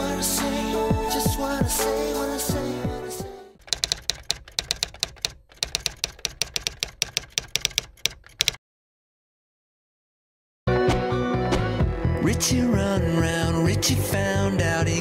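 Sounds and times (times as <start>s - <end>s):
rapid keyboard typing clicks: 3.6s - 8.6s.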